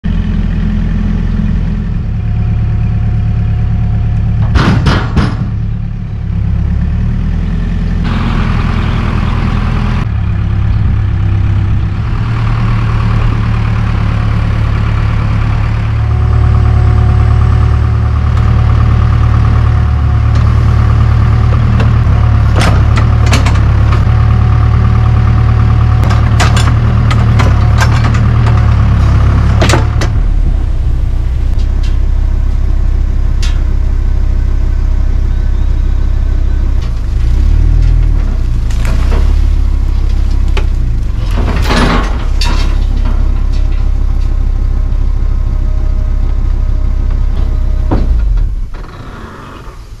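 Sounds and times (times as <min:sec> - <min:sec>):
heavy equipment engine rumbling: 0:00.0 - 0:50.0
sharp knocks: 0:04.4 - 0:05.6.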